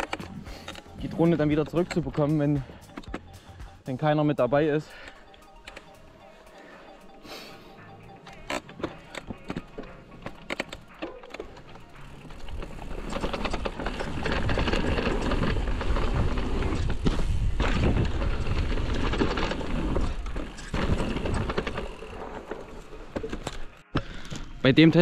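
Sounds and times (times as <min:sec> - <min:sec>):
bike rattling over ground: 0:00.0 - 0:02.7, 0:08.4 - 0:23.8
bike tyres rolling on dirt: 0:09.0 - 0:23.8.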